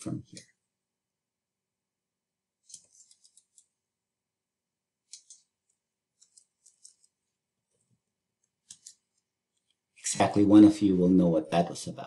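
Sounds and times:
computer mouse clicks: 2.6 - 3.7, 5.1 - 7.2, 8.4 - 9.8
keyboard clicks: 5.1 - 5.5, 6.2 - 7.2.

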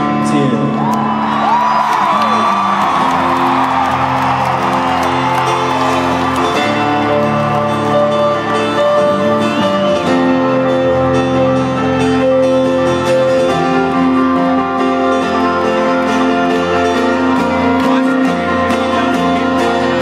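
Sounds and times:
live band music: 0.0 - 20.0
crowd cheering: 0.7 - 9.8.

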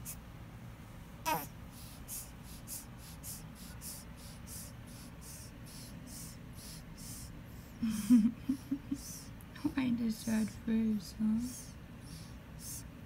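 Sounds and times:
baby grunting: 1.2 - 7.3
baby snuffling through nose: 1.3 - 7.3.

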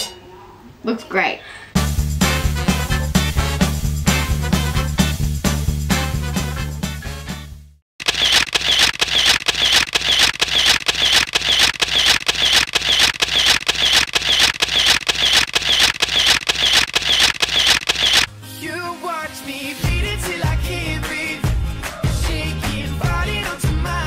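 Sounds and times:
phone camera shutter clicks: 8.0 - 18.3.

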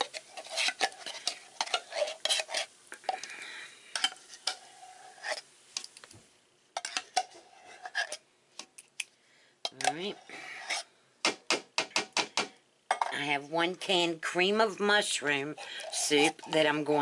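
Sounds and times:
spoon scraping inside tin can: 0.0 - 3.3, 3.9 - 5.5, 6.8 - 8.2, 15.4 - 17.0.

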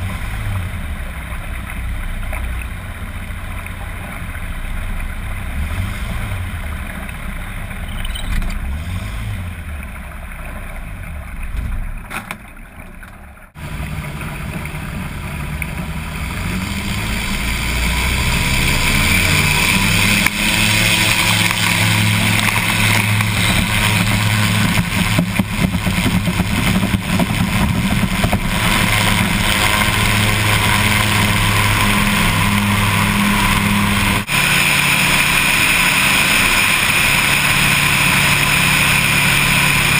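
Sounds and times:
water: 0.0 - 39.9
aircraft engines at full power: 13.6 - 39.9.

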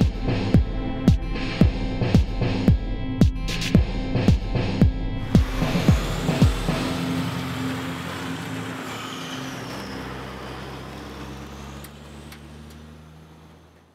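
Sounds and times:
electronic music bass beat: 0.0 - 7.0
diesel truck driving on gravel: 5.2 - 13.9.

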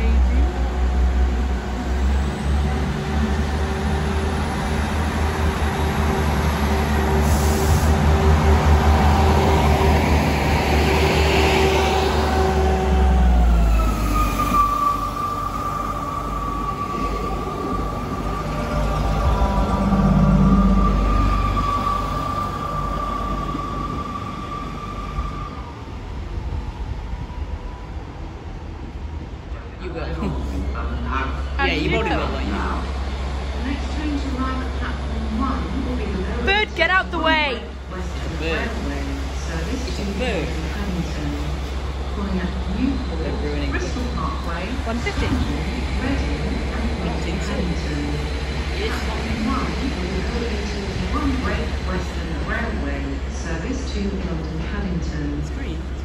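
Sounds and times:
diesel train engine rumble: 0.0 - 56.0
high-pitched whine: 15.8 - 25.0.

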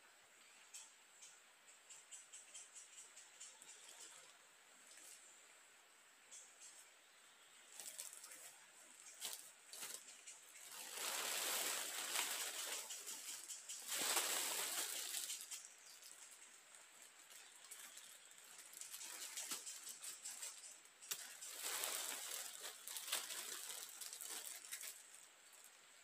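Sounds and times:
crackles and clicks: 7.7 - 25.8
plastic sheeting rustling: 7.8 - 16.0, 17.0 - 25.3.

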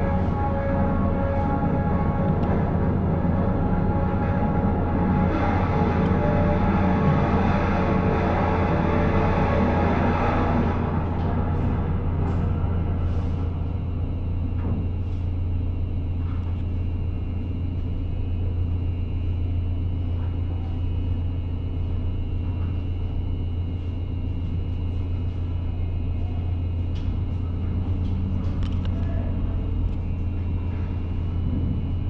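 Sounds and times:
faint high whine: 0.0 - 32.0
ferry engine deep hum: 0.0 - 32.0.

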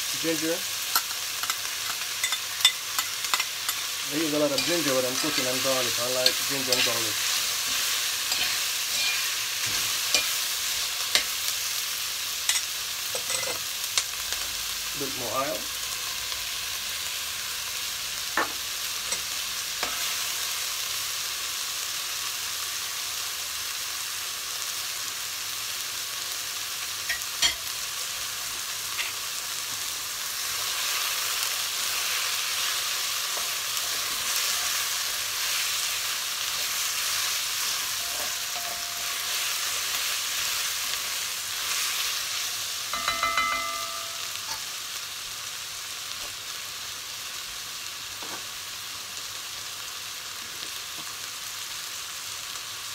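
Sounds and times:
vegetables sizzling in hot oil: 0.0 - 52.9
spatula knocking on pot: 43.0 - 44.2.

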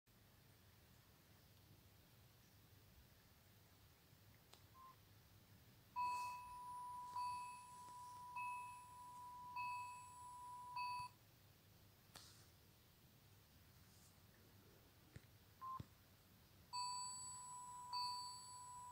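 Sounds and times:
electronic phone beeping: 6.0 - 11.2, 15.6 - 15.8, 16.7 - 18.9.

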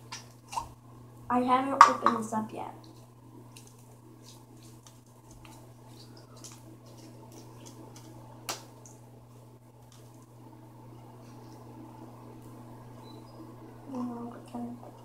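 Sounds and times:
slime squelching: 2.8 - 10.2.

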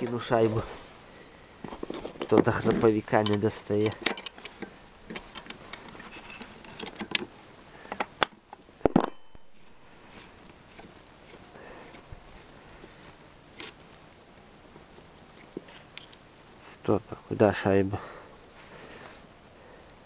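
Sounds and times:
small metal clicks and knocks: 1.6 - 7.3.

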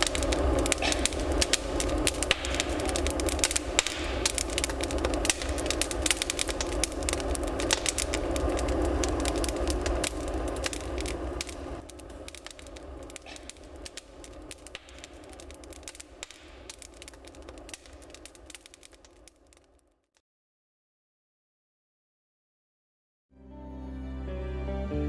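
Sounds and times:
low fire rumble: 0.0 - 19.8
logs crackling and popping: 0.0 - 20.2.

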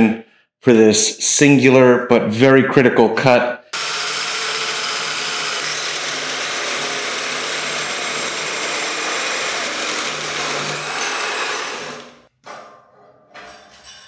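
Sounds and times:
electric drill cutting steel: 3.8 - 12.3.

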